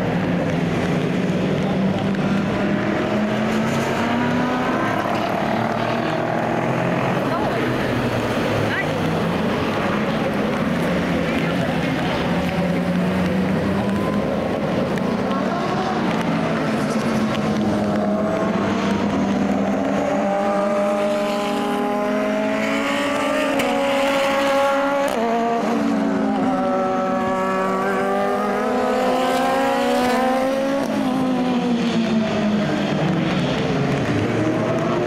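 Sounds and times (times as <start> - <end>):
race cars driving past: 0.0 - 35.0.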